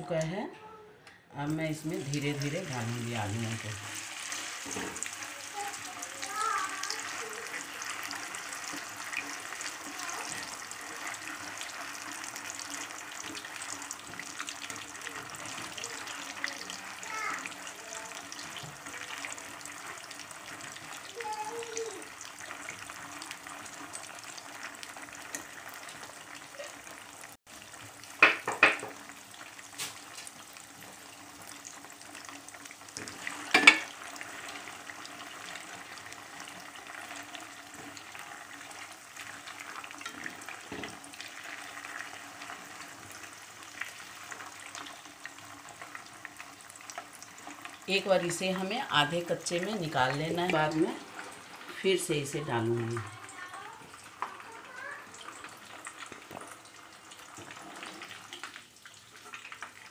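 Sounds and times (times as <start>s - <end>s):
potatoes sizzling in hot oil: 1.4s - 59.9s
skimmer knocking against pan: 28.2s - 29.0s, 33.5s - 33.9s.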